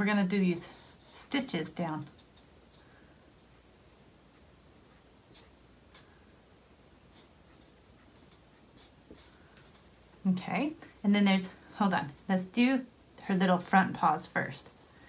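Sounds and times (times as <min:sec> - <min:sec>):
markers scratching on paper: 0:03.4 - 0:06.1, 0:07.1 - 0:09.9.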